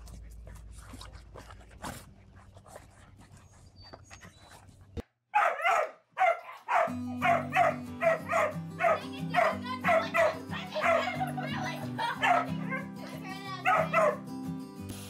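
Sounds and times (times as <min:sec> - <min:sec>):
dog barking: 0:05.3 - 0:11.4, 0:12.1 - 0:12.9, 0:13.6 - 0:14.2
background music: 0:06.2 - 0:15.0.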